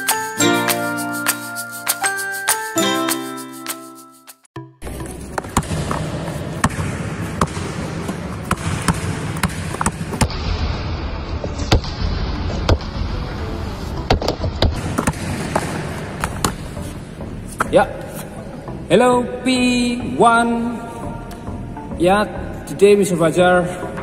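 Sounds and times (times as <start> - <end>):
basketball bouncing on hard floor: 5.4 - 10.3, 14.1 - 16.6.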